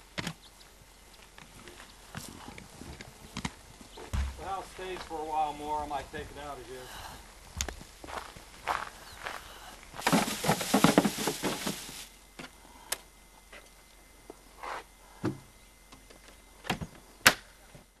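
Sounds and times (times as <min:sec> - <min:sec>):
bags rustling and clattering: 0:10.0 - 0:12.2.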